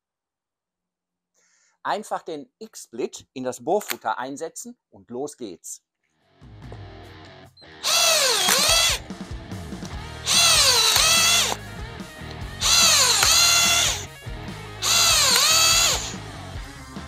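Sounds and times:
background music: 0:06.4 - 0:17.0
electric drill whining: 0:07.6 - 0:09.1, 0:10.2 - 0:11.8, 0:12.6 - 0:14.2, 0:14.8 - 0:16.3.

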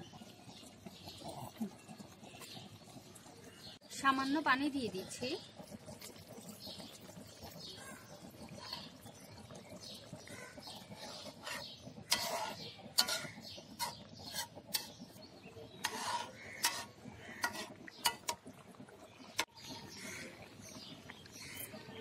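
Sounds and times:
metal ladle scraping a pan: 0:10.8 - 0:18.6.

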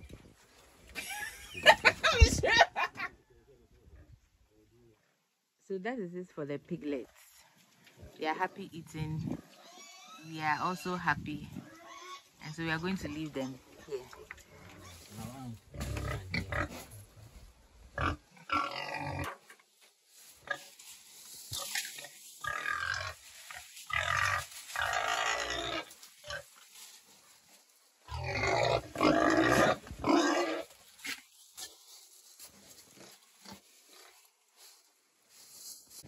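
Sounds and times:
pig grunting and squealing: 0:09.2 - 0:10.5, 0:14.1 - 0:17.0, 0:18.0 - 0:19.4, 0:23.9 - 0:26.5, 0:28.1 - 0:30.7.

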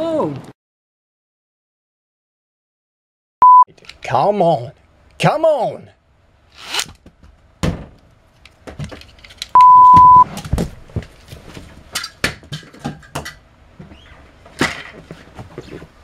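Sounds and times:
censor bleep: 0:03.4 - 0:03.7, 0:09.6 - 0:10.3.

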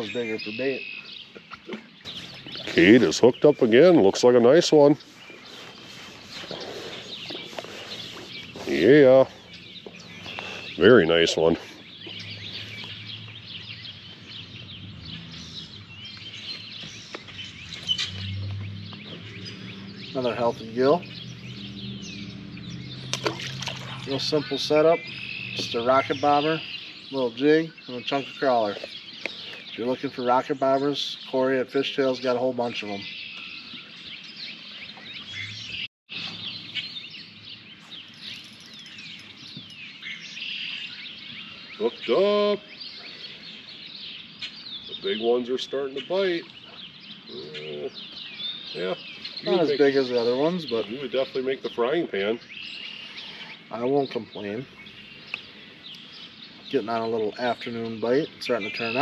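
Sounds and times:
faint outdoor hush: 0:00.0 - 0:35.0, 0:52.4 - 0:58.8
songbirds chirping and singing: 0:00.0 - 0:59.0.

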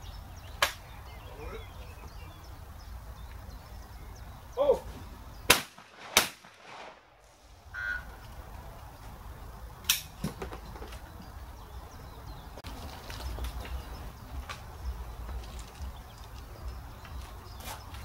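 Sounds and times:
shotgun shots: 0:05.5 - 0:07.2.

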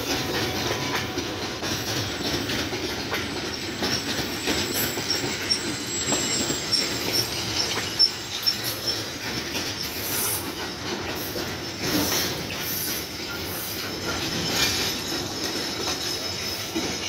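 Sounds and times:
wheels clacking over rail joints: 0:00.0 - 0:17.0
high-pitched wheel squeals: 0:00.3 - 0:10.7.

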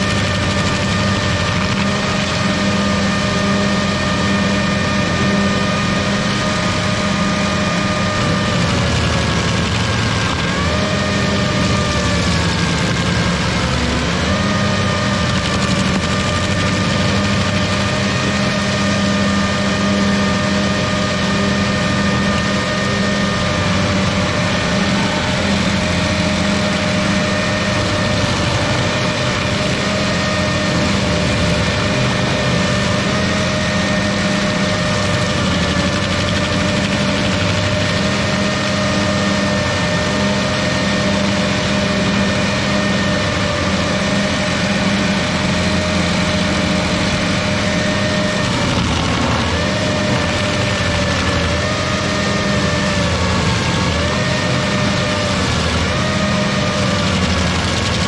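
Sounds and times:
cutter wheel high whine: 0:00.0 - 0:58.0
stump grinder engine drone: 0:00.0 - 0:58.0.

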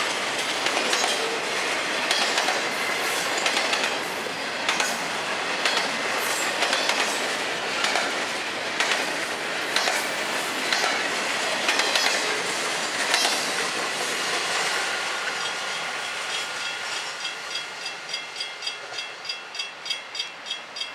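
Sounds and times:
freight train rolling past: 0:00.0 - 0:20.9
wheels clicking over rail joints: 0:00.4 - 0:14.2
crossing warning bell ringing: 0:15.4 - 0:20.9.

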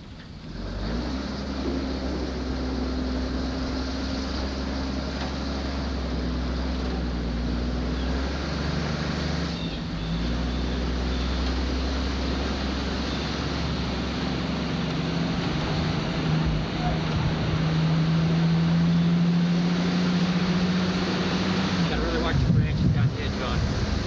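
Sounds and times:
road noise: 0:00.0 - 0:24.0
vehicle engine running: 0:00.0 - 0:24.0.

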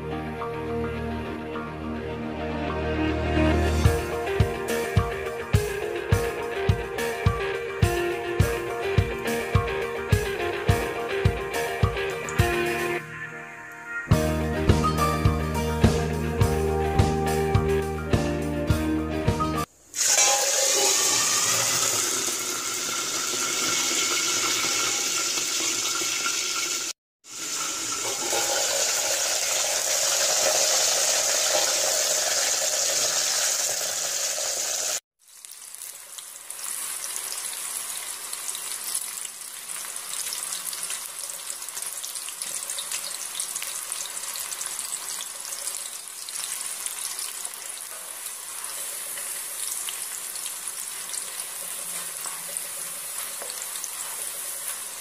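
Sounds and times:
peas sizzling in hot oil: 0:19.6 - 0:55.0.

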